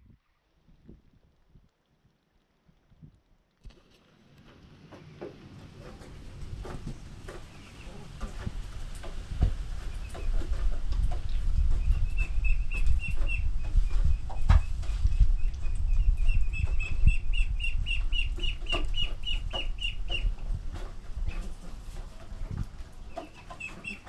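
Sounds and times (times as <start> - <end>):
chicks peeping: 4.9 - 24.0.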